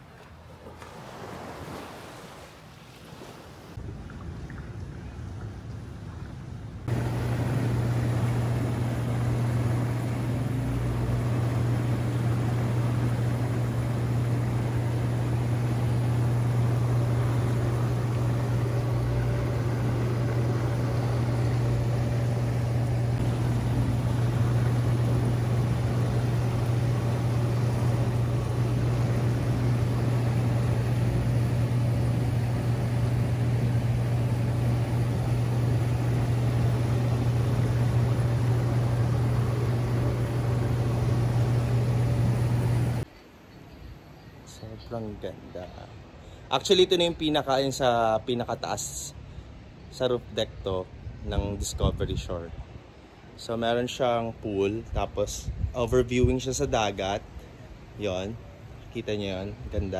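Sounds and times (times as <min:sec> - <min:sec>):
churning water rushing: 0:00.0 - 0:43.0
pump hum: 0:06.8 - 0:43.1.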